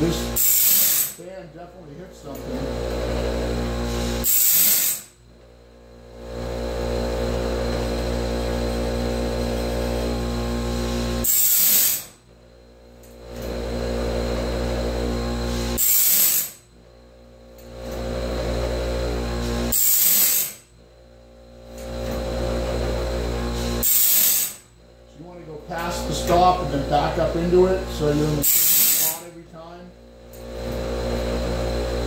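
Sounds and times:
grinding wheel grinding saw teeth: 0:00.0 - 0:05.2, 0:06.4 - 0:12.2, 0:13.0 - 0:16.7, 0:17.6 - 0:20.8, 0:21.6 - 0:29.6
grinding wheel running: 0:00.0 - 0:32.0.

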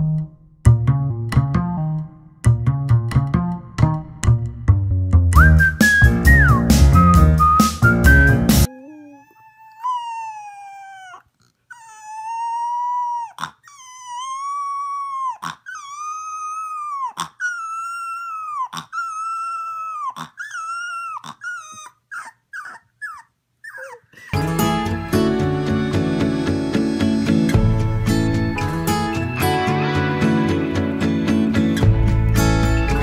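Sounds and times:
puppy howling: 0:08.6 - 0:24.4
puppy yipping: 0:08.6 - 0:24.4.

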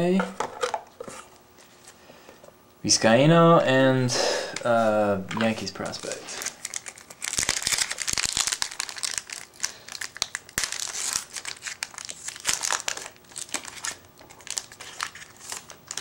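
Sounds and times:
foil wrapper crinkling: 0:05.5 - 0:16.0
sharp clicks of foil: 0:06.0 - 0:14.0.

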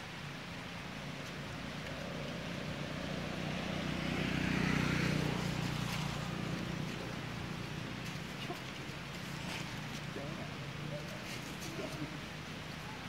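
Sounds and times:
vehicle engine passing by: 0:01.4 - 0:10.9.

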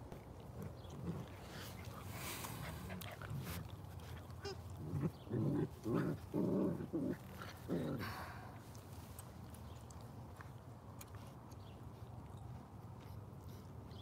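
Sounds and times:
puppies play-growling: 0:00.1 - 0:10.4.

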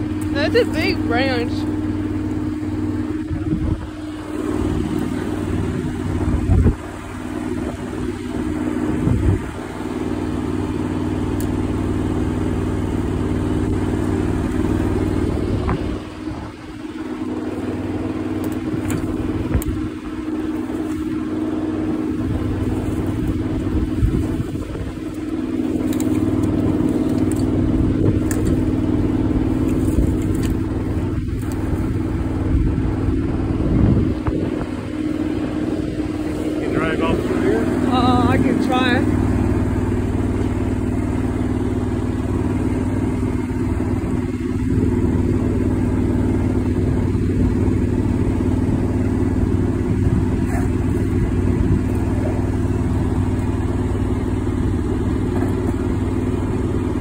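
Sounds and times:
engine idling: 0:00.0 - 0:57.0
branches rustling and knocking: 0:17.2 - 0:32.8, 0:48.8 - 0:56.8.

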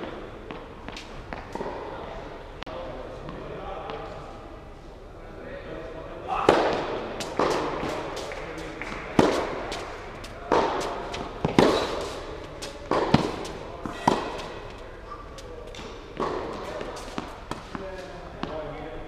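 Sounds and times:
ball bouncing on hard court: 0:10.4 - 0:14.5.

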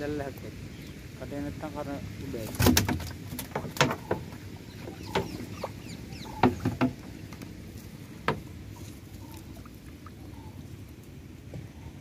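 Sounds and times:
water splashing and dripping: 0:00.2 - 0:11.6
net slapping and knocking: 0:02.5 - 0:04.2.

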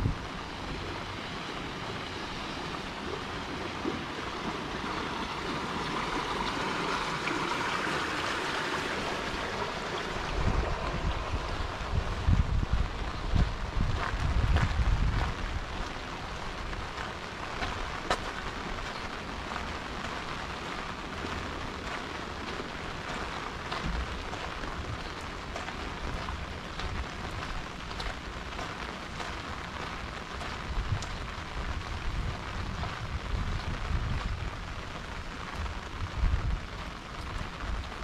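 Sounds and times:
steady rain: 0:00.0 - 0:38.0.

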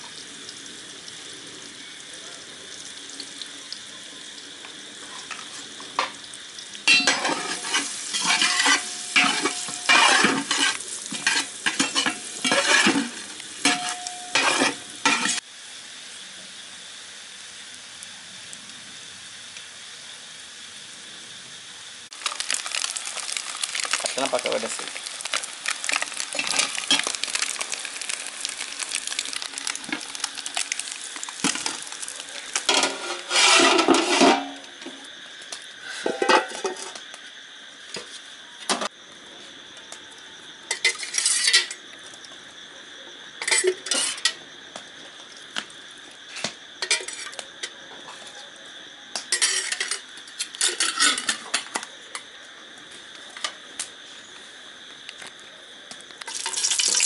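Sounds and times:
utensils clinking on metal pots: 0:06.9 - 0:15.4, 0:32.6 - 0:34.6, 0:49.3 - 0:51.7.

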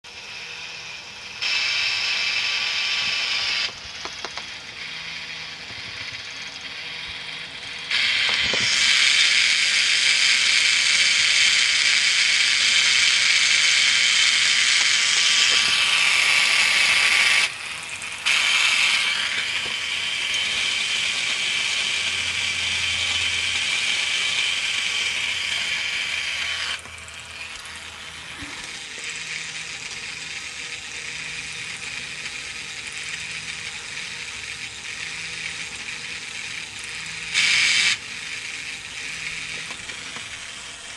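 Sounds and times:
toy motor whirring: 0:00.1 - 0:40.9.

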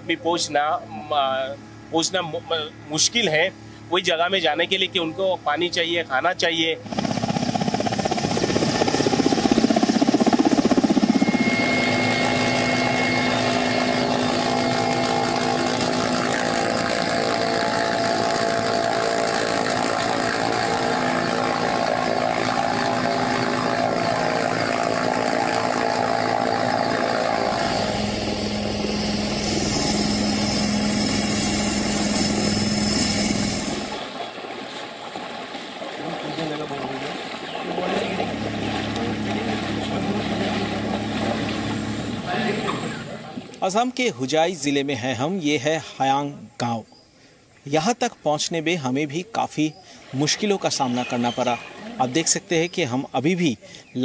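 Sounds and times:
helicopter rotor and turbine: 0:00.0 - 0:43.5.

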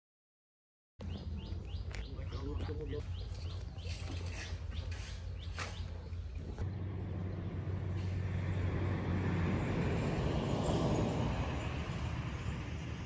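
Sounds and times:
vehicle passing by: 0:05.4 - 0:13.0.

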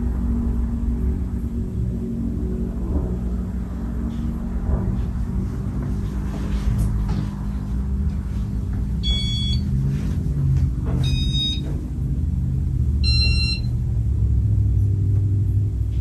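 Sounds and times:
ceiling fan rumble: 0:00.0 - 0:16.0
short high beeps: 0:09.0 - 0:09.6, 0:13.0 - 0:13.7.

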